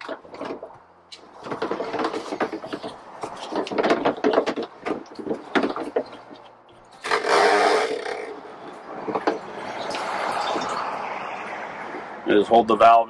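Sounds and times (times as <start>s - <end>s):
knocking and rattling plastic jug: 1.4s - 6.4s.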